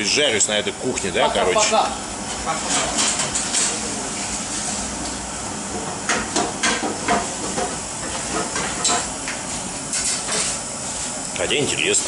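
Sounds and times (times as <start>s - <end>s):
metal pots and utensils clattering: 2.5s - 3.8s.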